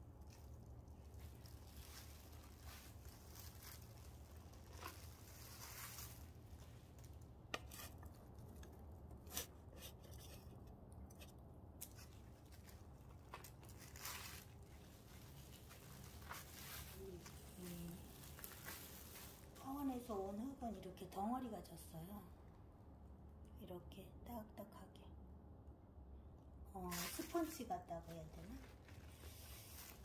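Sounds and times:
soil crumbling and scraping: 0:00.0 - 0:16.9.

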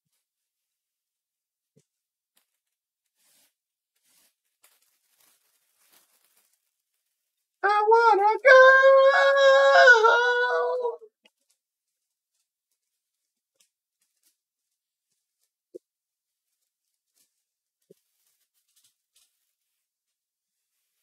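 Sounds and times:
high-pitched voice singing: 0:07.6 - 0:11.1.

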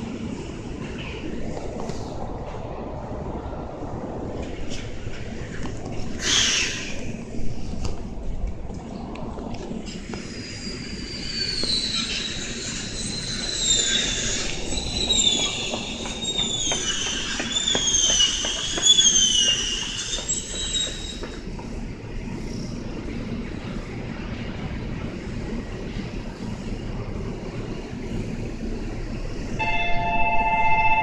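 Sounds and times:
wheels clicking over rail joints: 0:04.3 - 0:22.7
train wheels squealing: 0:06.1 - 0:07.2, 0:09.9 - 0:21.5, 0:27.8 - 0:31.0.

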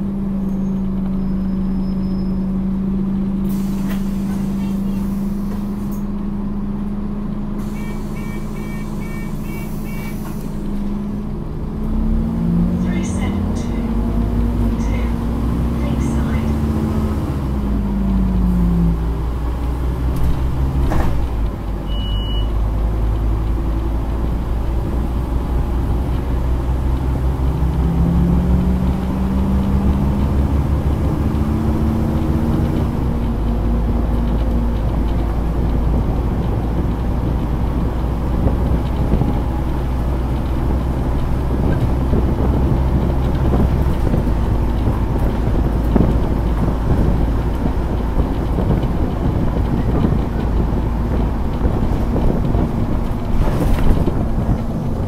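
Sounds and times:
bus engine drone: 0:00.0 - 0:55.0
short high beep: 0:07.7 - 0:10.2, 0:21.9 - 0:22.6.

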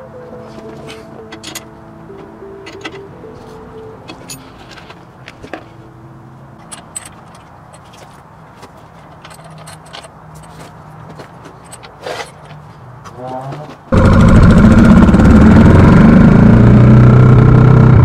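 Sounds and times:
hand tools clinking on metal: 0:00.8 - 0:01.7, 0:04.1 - 0:04.8, 0:09.0 - 0:10.7.

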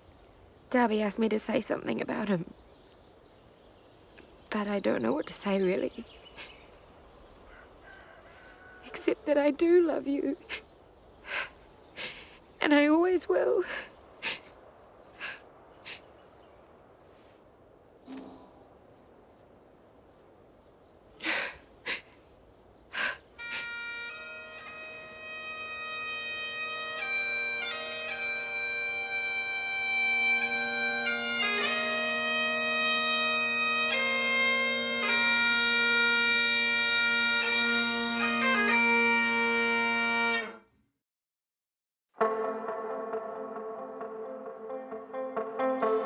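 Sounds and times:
bagpipes playing: 0:23.4 - 0:40.6, 0:42.2 - 0:46.0.

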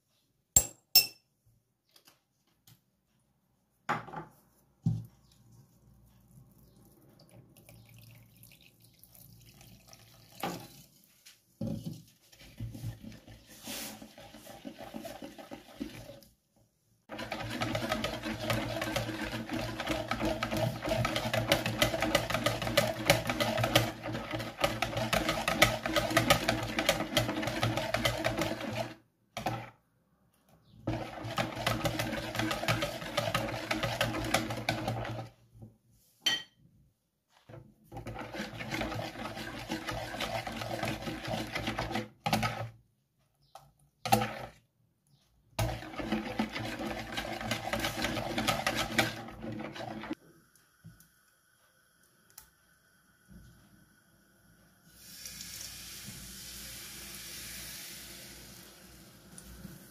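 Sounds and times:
whisk beating batter in plastic bowl: 0:11.6 - 0:16.3, 0:17.1 - 0:29.8, 0:30.7 - 0:35.7, 0:37.5 - 0:42.8, 0:44.0 - 0:44.6, 0:45.5 - 0:50.2.

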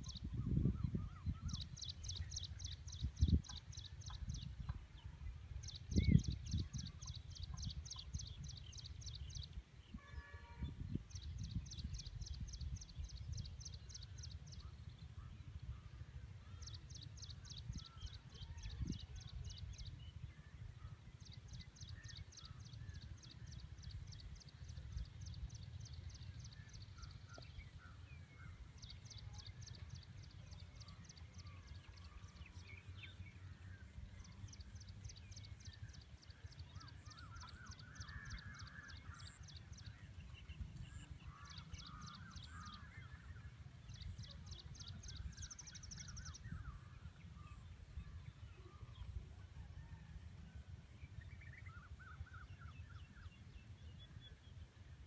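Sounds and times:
wind on microphone: 0:00.0 - 0:33.2, 0:43.6 - 0:54.4.

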